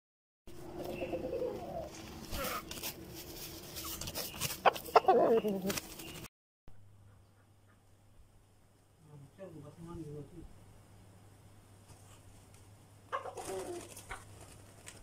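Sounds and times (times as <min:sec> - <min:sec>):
chickens clucking and calling: 0:00.6 - 0:02.6, 0:03.8 - 0:06.1, 0:13.0 - 0:14.9.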